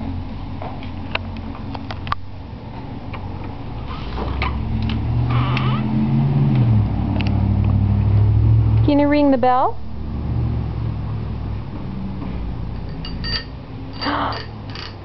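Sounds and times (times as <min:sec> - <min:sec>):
low engine hum: 0:00.0 - 0:13.9.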